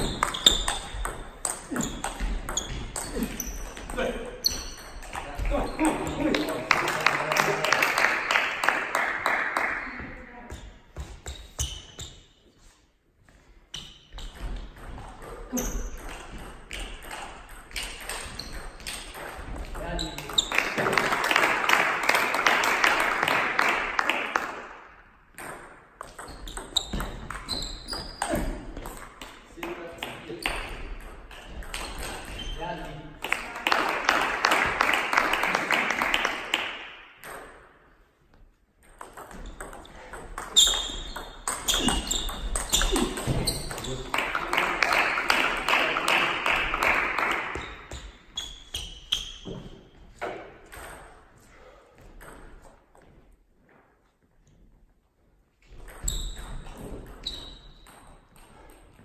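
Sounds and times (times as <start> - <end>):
loud hall noise: 0.0 - 1.0, 1.6 - 10.7, 18.1 - 25.2, 31.8 - 37.6, 41.4 - 48.8
table tennis balls bouncing: 0.0 - 9.3, 13.7 - 51.4, 52.0 - 53.3, 55.6 - 59.0.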